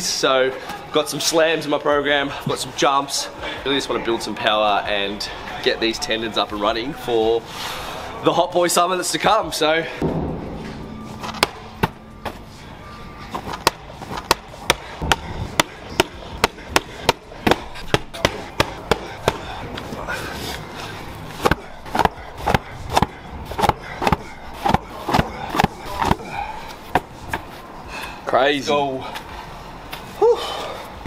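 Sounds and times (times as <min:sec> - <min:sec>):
medicine ball thudding on wall: 0:13.6 - 0:19.5.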